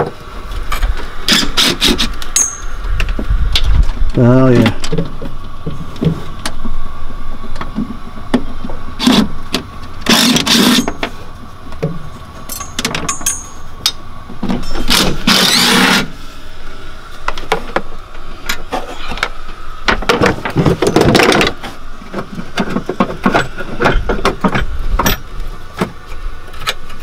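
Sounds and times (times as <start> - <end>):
hand tools knocking and scraping: 10.1 - 11.2, 19.9 - 25.2.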